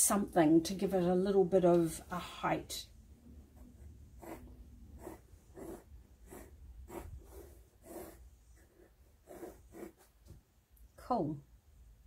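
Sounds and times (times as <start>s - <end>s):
pencil scratching on paper: 3.4s - 10.2s.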